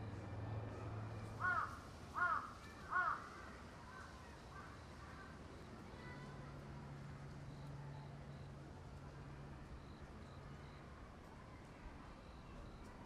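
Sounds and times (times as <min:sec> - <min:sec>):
crow cawing: 0:01.4 - 0:03.3.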